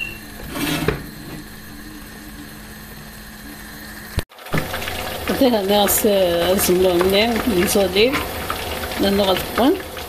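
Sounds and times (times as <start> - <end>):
spatula scraping frying pan: 0.4 - 1.0.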